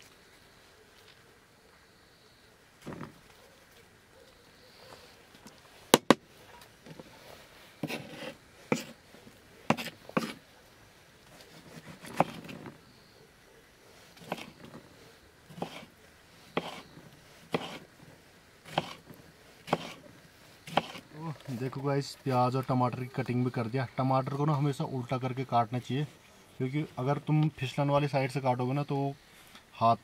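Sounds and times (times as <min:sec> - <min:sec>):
knife cutting vegetables: 0:07.8 - 0:09.0, 0:09.7 - 0:10.4, 0:11.5 - 0:12.7, 0:14.2 - 0:14.6, 0:15.5 - 0:15.9, 0:16.6 - 0:16.9, 0:17.5 - 0:17.8, 0:18.7 - 0:19.0, 0:19.7 - 0:20.0, 0:20.7 - 0:21.0.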